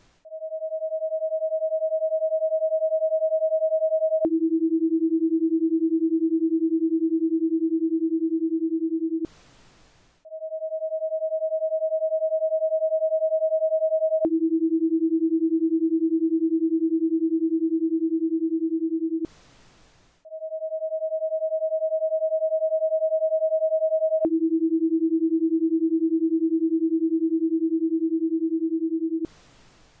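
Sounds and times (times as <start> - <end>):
faint hiss: 9.3 - 10.2, 19.3 - 20.2, 29.3 - 30.0.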